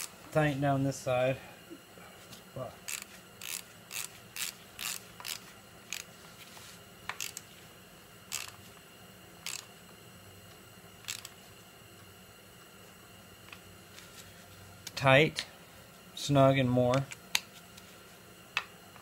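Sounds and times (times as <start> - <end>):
ratchet wrench clicking: 2.9 - 6.1, 7.1 - 7.4, 8.3 - 8.6, 9.4 - 9.7, 11.0 - 11.3.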